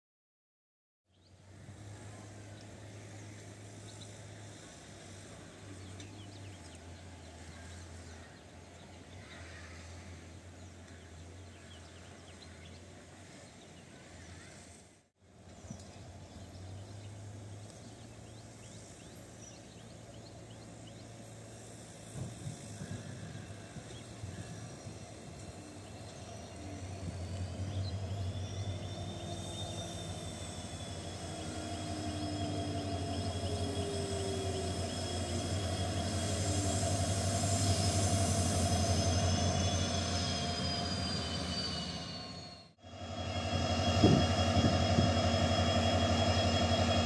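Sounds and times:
diesel locomotive rumble: 1.2 - 47.0
low hum: 15.4 - 47.0.

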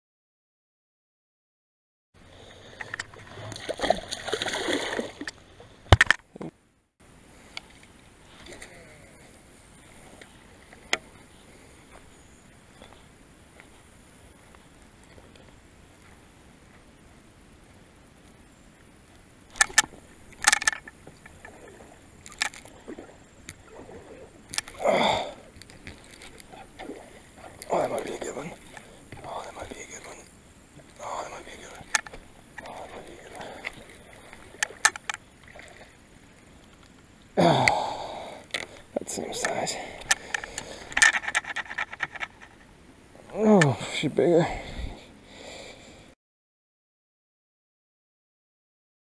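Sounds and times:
fish thrashing and splashing: 3.1 - 6.1
fishing reel clicks and knocks: 19.5 - 21.0, 39.4 - 42.6.

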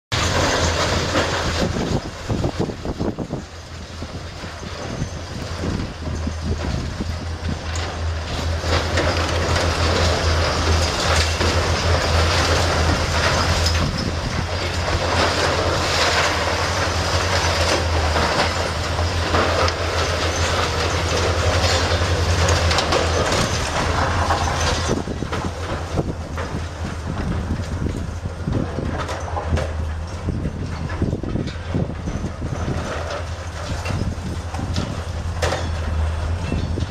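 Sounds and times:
concrete and debris crashing: 0.1 - 3.2, 7.4 - 26.8.

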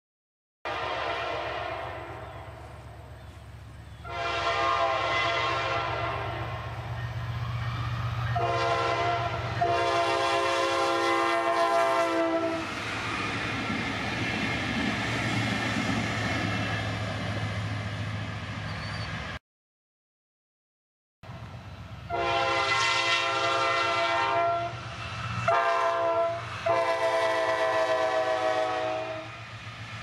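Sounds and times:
locomotive air horn: 0.7 - 2.7, 4.0 - 6.7, 8.3 - 12.8, 22.1 - 24.8, 25.4 - 29.4.

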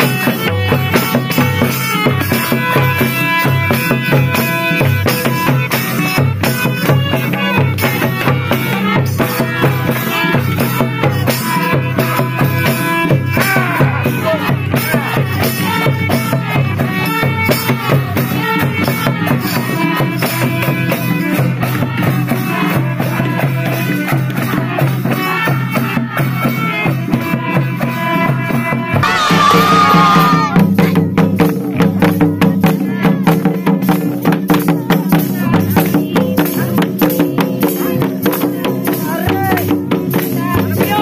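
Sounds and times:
hand drum beat: 0.0 - 41.0
harmonium melody: 29.0 - 30.5.

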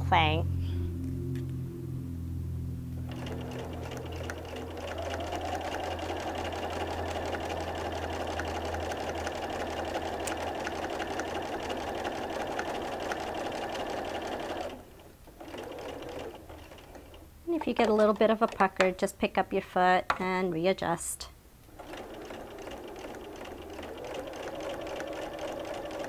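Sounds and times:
electric sewing machine stitching: 3.0 - 18.8, 21.7 - 26.0.

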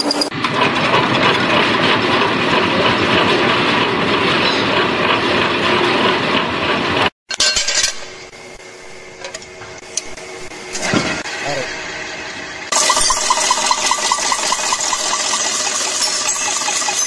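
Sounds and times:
lathe humming: 12.7 - 17.0.

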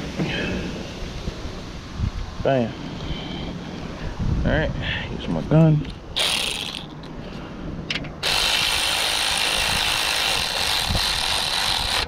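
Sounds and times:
cordless power tool driving bolt: 6.2 - 7.0, 7.9 - 12.0.

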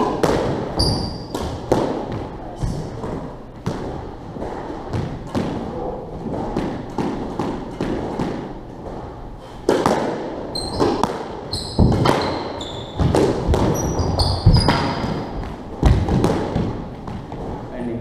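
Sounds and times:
shoes squeaking on floor: 0.0 - 1.6, 10.4 - 17.7
squash ball knocks: 0.0 - 9.0, 9.6 - 17.6.

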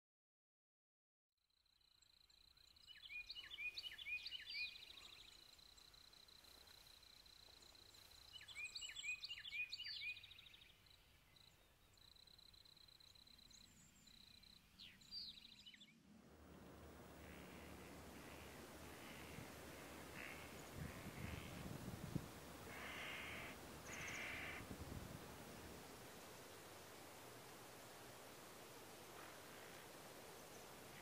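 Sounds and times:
songbird singing: 1.6 - 31.0
steady high-pitched whine: 15.9 - 31.0.

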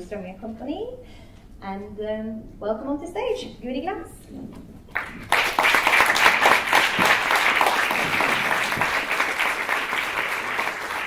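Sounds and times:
audience applauding: 4.9 - 11.0.

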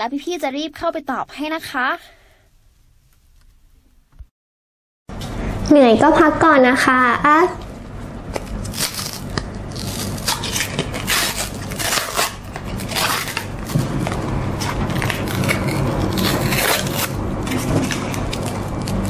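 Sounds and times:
low steady hum: 5.1 - 19.0
wrapper crinkling and tearing: 8.4 - 19.0.

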